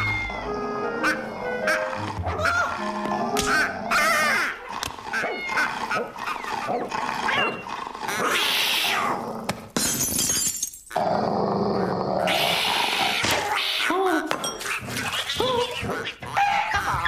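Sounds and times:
cartoon cat growling and yowling: 0.0s - 9.3s.

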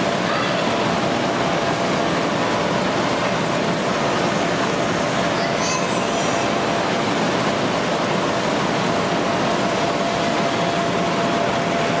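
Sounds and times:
electric blower running: 6.0s - 12.0s.

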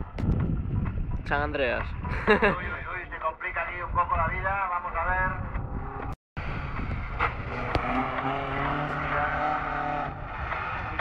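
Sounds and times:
racing car engine at high revs: 6.4s - 11.0s.

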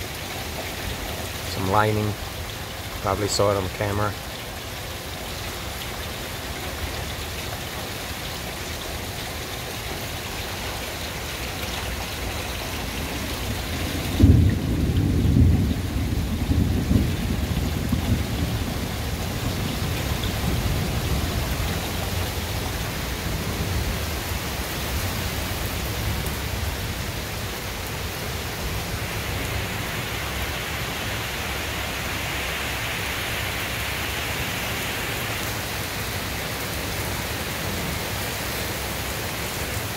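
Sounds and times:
steady rain: 0.0s - 39.9s
thunderclap rumbling: 12.7s - 24.1s.

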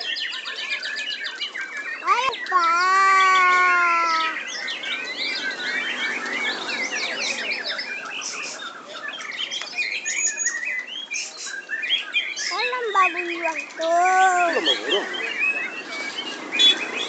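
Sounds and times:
songbirds chirping and trilling: 0.0s - 17.0s
long held bird call: 2.0s - 4.7s.

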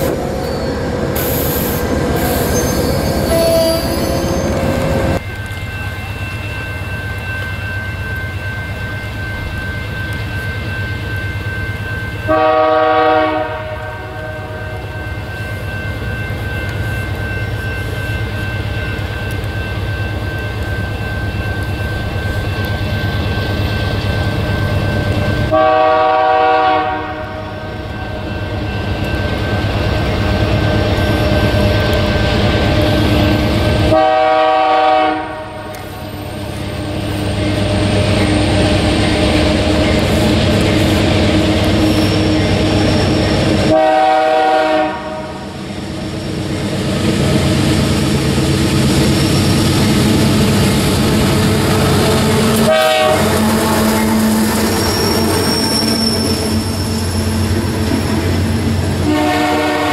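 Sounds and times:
locomotive air horn blasts: 12.3s - 14.9s, 25.5s - 27.7s, 33.9s - 35.7s, 43.7s - 45.4s, 52.5s - 54.4s, 59.0s - 59.9s.

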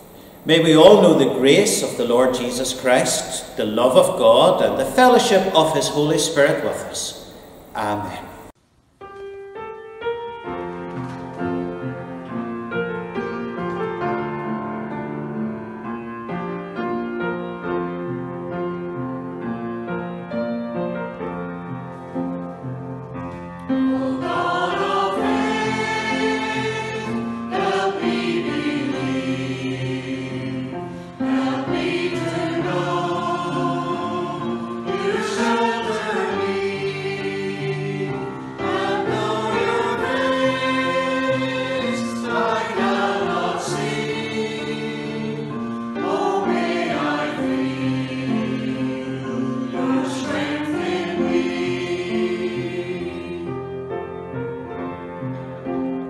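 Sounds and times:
choir singing a hymn: 0.0s - 8.5s, 23.3s - 56.0s.

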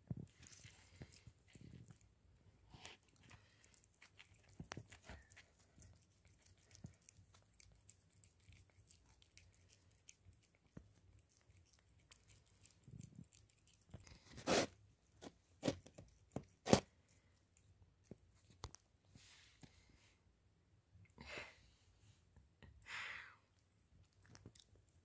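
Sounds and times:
cat chewing wet clicks: 0.2s - 14.3s
cat tearing bites: 2.7s - 14.7s.

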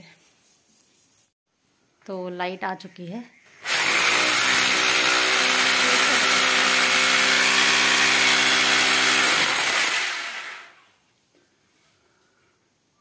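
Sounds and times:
electric drill boring into wall: 3.6s - 10.8s.

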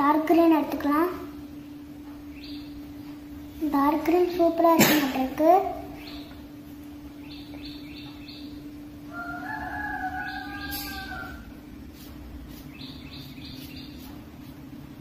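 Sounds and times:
steady low hum: 0.0s - 15.0s
rooster crowing: 9.1s - 11.6s.

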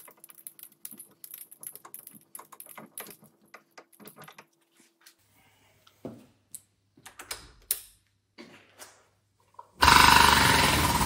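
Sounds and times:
metal clicks and clinks: 0.0s - 4.5s.

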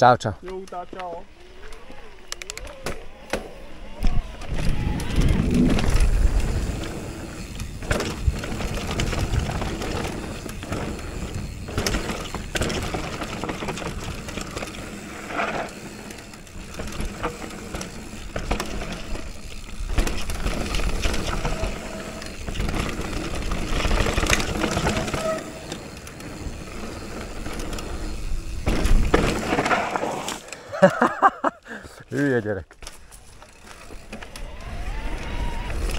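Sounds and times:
bike tyres on dirt trail: 0.2s - 35.9s
bike knocking and rattling: 0.4s - 30.5s, 32.2s - 35.9s
wind rumble: 4.2s - 12.9s.

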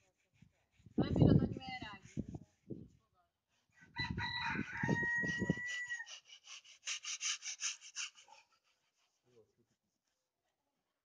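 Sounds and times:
rooster crowing: 3.9s - 6.1s.

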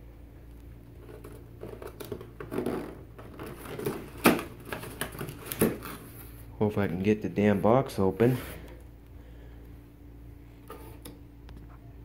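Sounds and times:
cardboard rustling and scraping: 1.0s - 6.5s.

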